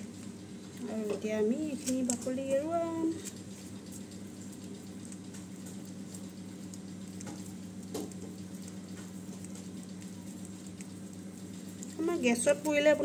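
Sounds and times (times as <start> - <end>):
charred skin crackling and rustling: 0.0 - 13.0
steady low hum: 0.0 - 13.0
small ticks: 1.7 - 13.0.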